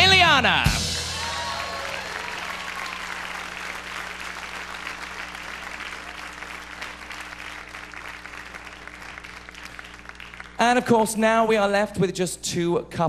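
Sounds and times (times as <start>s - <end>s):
audience applause: 1.0s - 10.6s.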